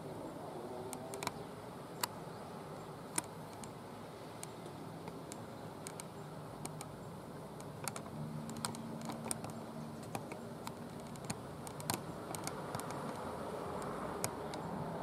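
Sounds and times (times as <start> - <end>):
sharp light clicks: 1.1 - 1.4, 2.0 - 2.2, 3.1 - 3.8, 4.4 - 7.0, 7.6 - 14.7.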